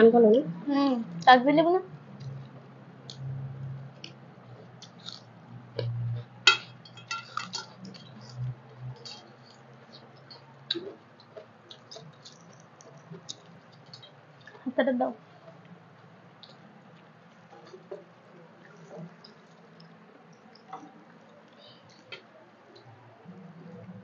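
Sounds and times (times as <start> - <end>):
clinks against metal plates: 6.5 - 7.8
fingers mixing rice on plates: 6.5 - 14.5
mouths chewing: 7.3 - 14.6.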